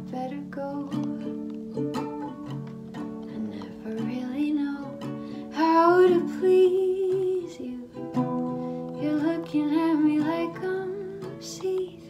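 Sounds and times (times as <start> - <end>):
acoustic song with plucked strings: 0.0 - 12.0
person singing: 3.2 - 12.0.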